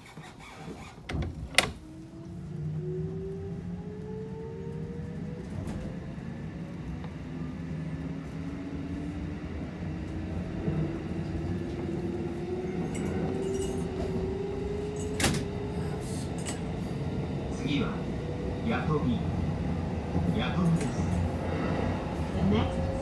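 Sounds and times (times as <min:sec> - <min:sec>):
wheels rumbling on rails: 0:00.8 - 0:23.0
traction motor whine: 0:01.6 - 0:09.0.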